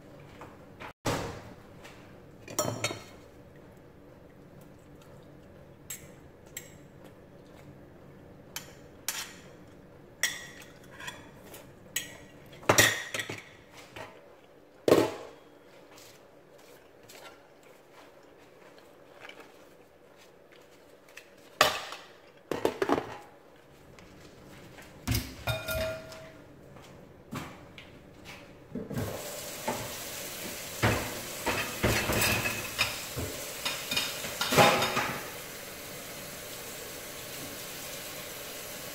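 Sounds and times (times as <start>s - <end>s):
utensils clinking against pan: 25.4s - 26.3s, 30.8s - 35.3s
pan sizzling: 29.0s - 38.9s.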